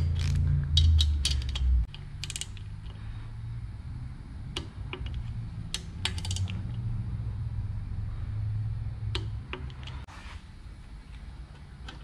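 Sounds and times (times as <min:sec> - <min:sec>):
torque wrench ratchet clicking: 0:00.0 - 0:02.9, 0:05.7 - 0:06.6
low steady hum: 0:00.0 - 0:12.0.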